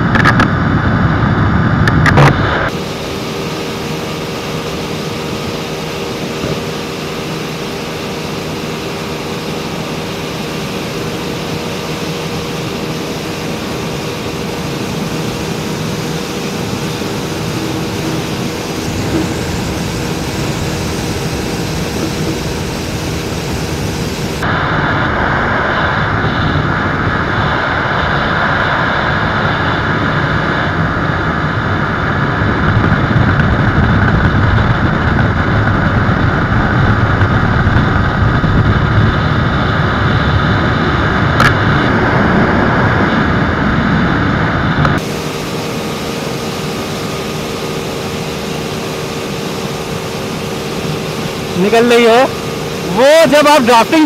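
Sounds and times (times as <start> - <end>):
motorcycle engine at full throttle: 0.0 - 54.0
wind rushing over microphone: 0.0 - 54.0.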